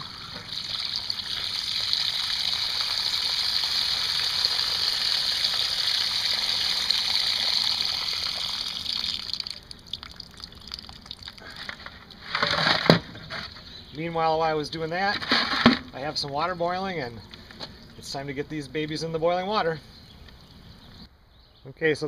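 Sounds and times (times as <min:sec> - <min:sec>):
water dripping and trickling: 0:00.0 - 0:12.4
water gushing onto gravel: 0:00.0 - 0:12.4.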